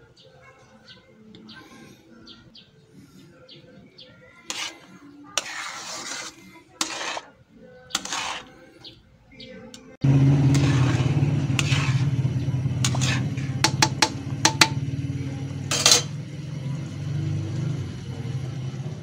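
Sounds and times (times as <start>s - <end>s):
spatula scraping pan: 4.4s - 9.0s, 10.3s - 14.8s, 15.6s - 16.2s
gas burner low rumble: 10.0s - 19.0s
metal spatula clicking on pan: 12.9s - 14.8s.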